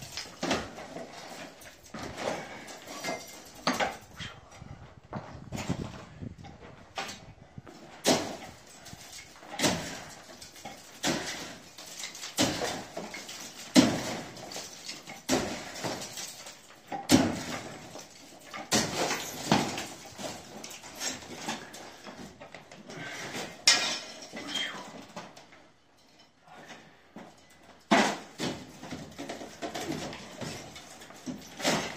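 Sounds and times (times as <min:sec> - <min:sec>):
crumbling plaster clattering: 0:00.0 - 0:04.1, 0:05.1 - 0:31.9
demolition tool striking plaster: 0:08.0 - 0:21.8, 0:27.9 - 0:31.9.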